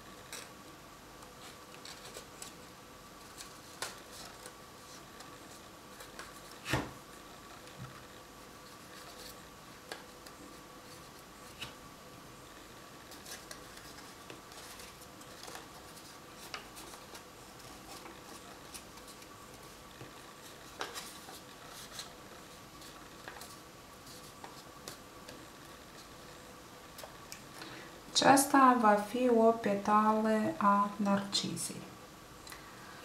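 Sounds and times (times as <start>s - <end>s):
paper rustling and crinkling: 0.0s - 0.6s, 1.2s - 11.8s, 12.6s - 27.6s
faint steady hum: 0.0s - 33.0s.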